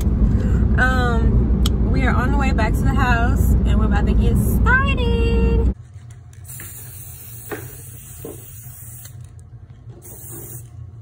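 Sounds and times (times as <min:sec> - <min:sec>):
spray paint can hissing: 0:06.4 - 0:09.3, 0:10.0 - 0:10.8.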